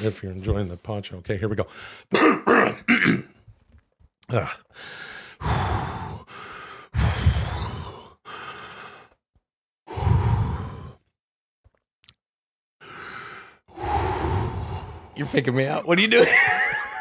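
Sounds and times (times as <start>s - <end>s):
man breathing deeply: 1.7s - 2.1s, 4.6s - 9.2s, 9.8s - 11.1s, 12.8s - 15.4s.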